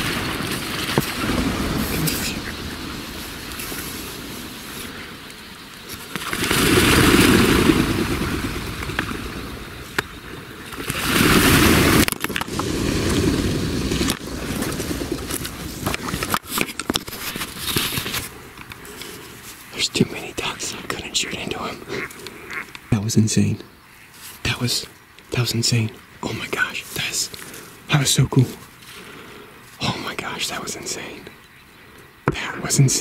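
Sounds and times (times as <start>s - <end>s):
flock of ducks wings whooshing: 0.0s - 16.3s.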